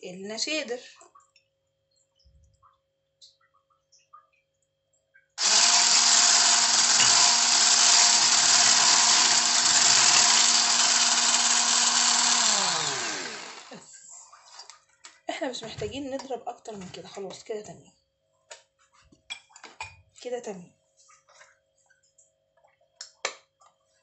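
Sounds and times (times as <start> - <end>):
electric mixer beating batter: 5.4 - 13.8
mixer winding down whine: 5.4 - 13.8.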